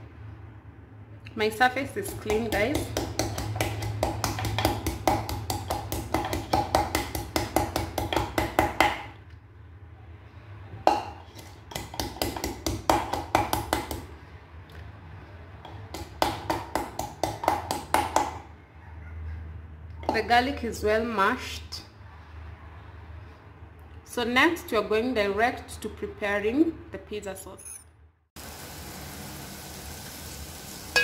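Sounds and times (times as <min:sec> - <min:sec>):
pestle pounding in wooden mortar: 0:02.0 - 0:09.2, 0:10.9 - 0:14.1, 0:15.7 - 0:18.4.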